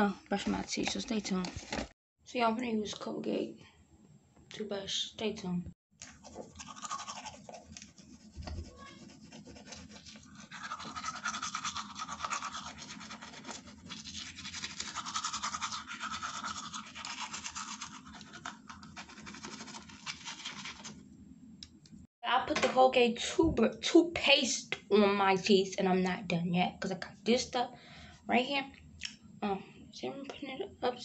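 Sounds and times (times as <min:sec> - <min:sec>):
toothbrush scrubbing teeth: 0:06.0 - 0:21.0.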